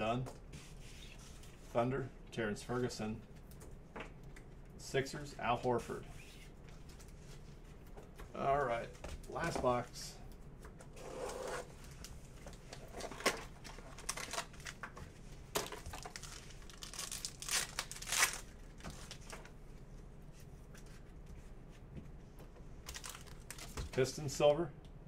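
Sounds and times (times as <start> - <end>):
card pack wrapper ripping: 13.6 - 14.8, 15.6 - 19.3, 22.9 - 23.8.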